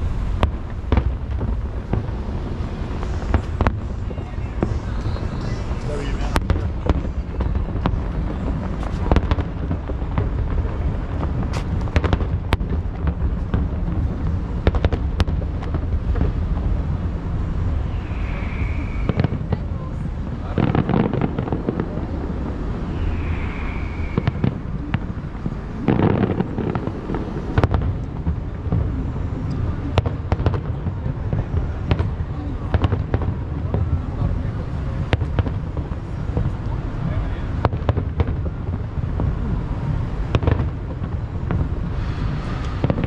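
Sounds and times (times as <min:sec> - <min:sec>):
firework bangs and booms: 0:00.0 - 0:43.0
low rumble: 0:00.0 - 0:43.0
firework whistles: 0:02.6 - 0:09.4, 0:17.5 - 0:27.7, 0:41.5 - 0:43.0.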